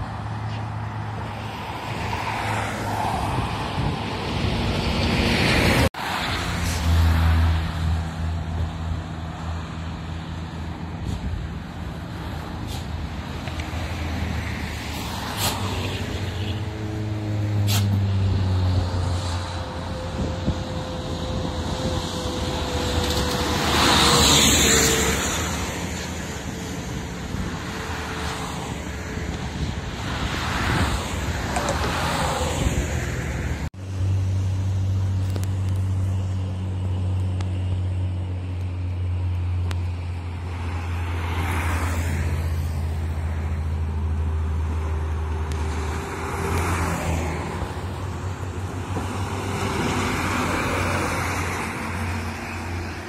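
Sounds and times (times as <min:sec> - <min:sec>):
bus approaching: 0:00.0 - 0:53.0
highway traffic passing: 0:00.0 - 0:53.0
truck passing close: 0:00.0 - 0:53.0.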